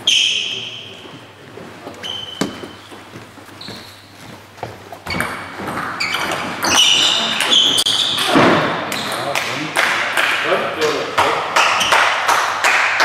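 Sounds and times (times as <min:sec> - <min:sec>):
shoes squeaking on wooden floor: 0:00.0 - 0:09.3.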